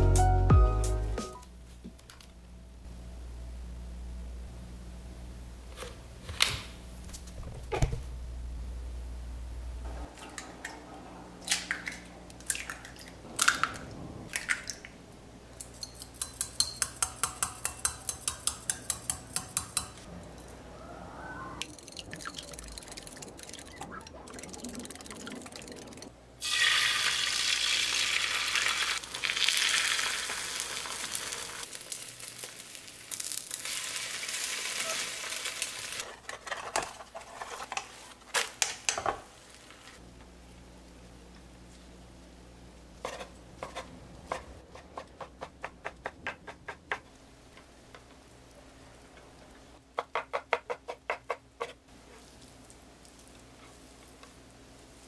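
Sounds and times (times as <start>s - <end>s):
dishes and utensils clinking: 15.6s - 20.5s
water running: 21.6s - 31.3s.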